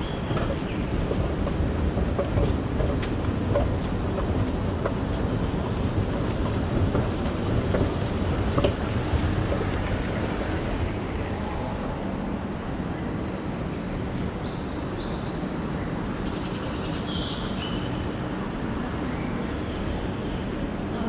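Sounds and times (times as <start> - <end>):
escalator rumbling: 0.0 - 13.3.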